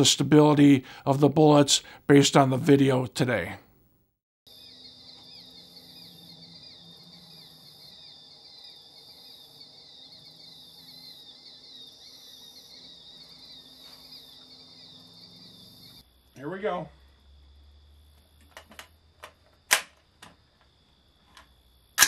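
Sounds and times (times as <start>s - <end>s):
crickets chirping: 4.5s - 22.0s.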